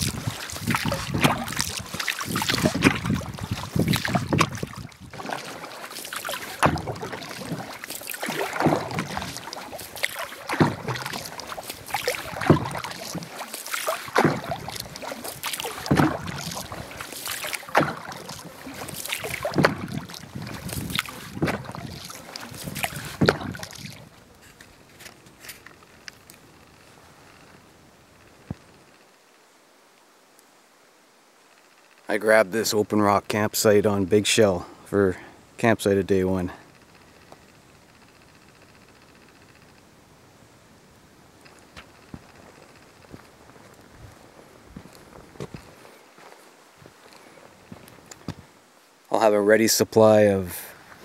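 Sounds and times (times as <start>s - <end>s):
paddle swishing through water: 0.0s - 27.7s, 41.4s - 49.2s.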